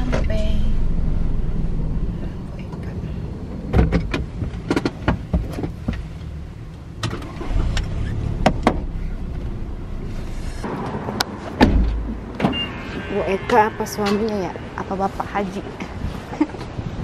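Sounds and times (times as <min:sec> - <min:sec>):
car engine rumbling: 0:00.0 - 0:17.0
sharp clicks and knocks: 0:03.7 - 0:06.1.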